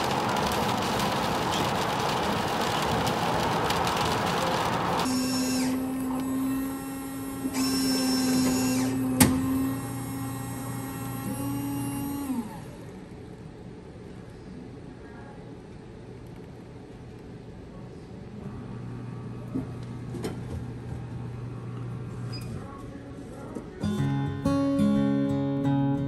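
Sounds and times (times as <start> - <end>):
car road noise on wet highway: 0.0 - 5.1
coffee machine motor humming: 0.0 - 13.2, 18.5 - 22.8.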